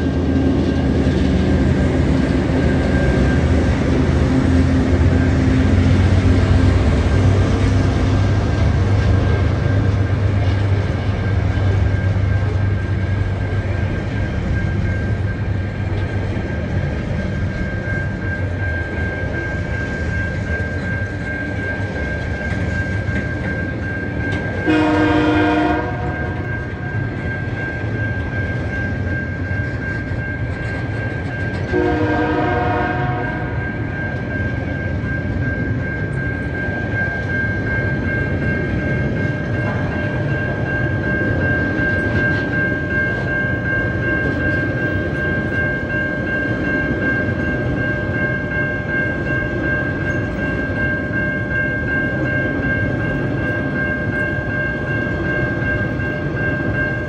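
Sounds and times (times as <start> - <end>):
train wheels rumbling on rails: 0.0 - 57.0
train horn blasts: 24.6 - 26.5, 31.7 - 33.6.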